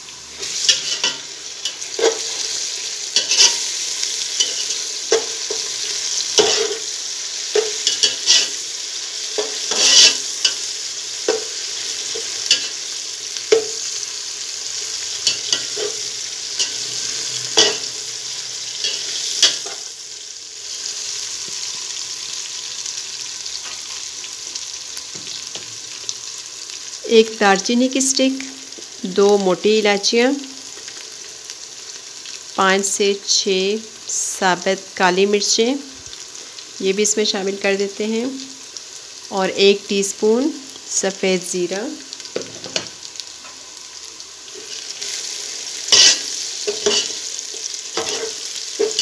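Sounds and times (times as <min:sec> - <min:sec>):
onions sizzling in hot oil: 0:00.0 - 0:49.0
spoon scraping and knocking pot: 0:09.4 - 0:10.6.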